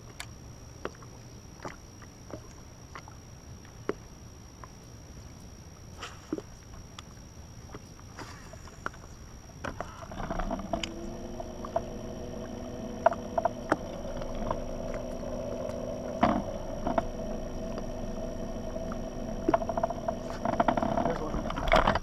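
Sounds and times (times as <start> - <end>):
electric motor humming: 10.0 - 22.0
rods and reels clicking: 10.1 - 22.0.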